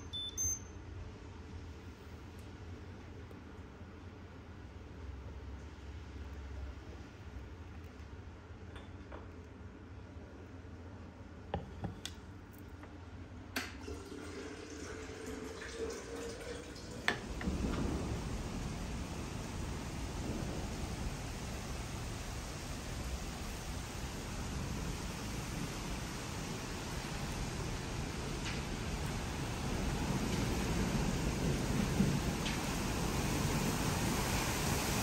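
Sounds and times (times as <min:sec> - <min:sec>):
steady rain: 0:01.2 - 0:08.6, 0:13.7 - 0:35.0
liquid pouring into a cup: 0:13.8 - 0:17.4.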